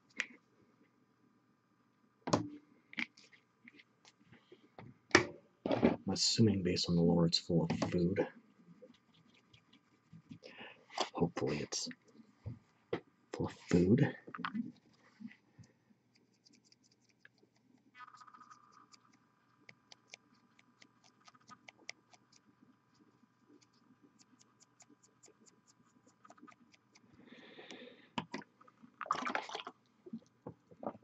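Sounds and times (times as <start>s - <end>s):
paintbrush scratching on plastic: 16.1s - 27.1s.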